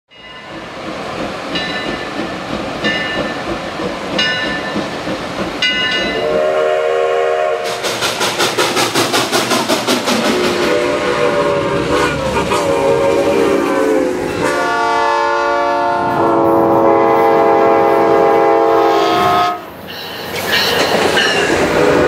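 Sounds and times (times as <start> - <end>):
steam hiss: 0.6 - 14.7, 19.8 - 22.0
ringing strikes: 5.6 - 6.2
steam whistle: 6.1 - 8.0, 10.3 - 19.7.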